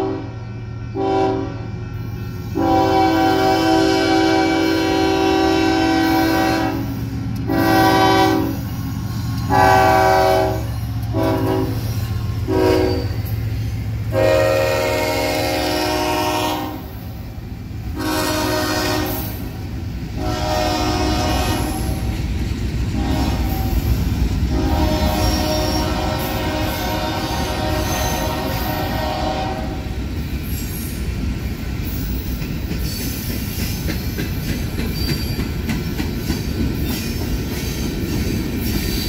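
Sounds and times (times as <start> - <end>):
locomotive air horn blasts: 0.0 - 0.4, 1.0 - 1.7, 2.4 - 8.6, 9.4 - 13.3, 14.1 - 17.1, 17.9 - 22.1, 23.0 - 30.0
train rumbling: 0.0 - 39.0.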